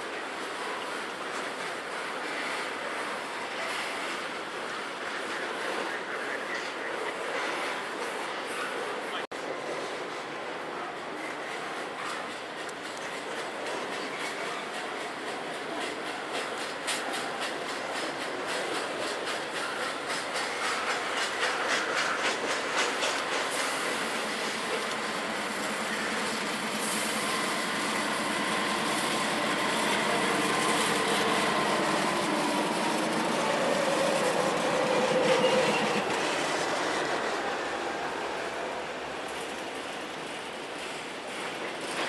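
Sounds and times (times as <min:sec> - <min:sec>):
freight train rumbling past: 0:00.0 - 0:42.0.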